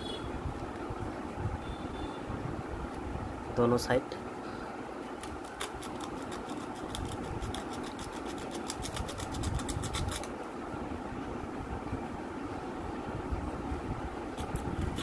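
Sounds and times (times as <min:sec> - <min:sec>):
low machine hum: 0:00.0 - 0:15.0
sandpaper scraping metal: 0:05.8 - 0:10.3.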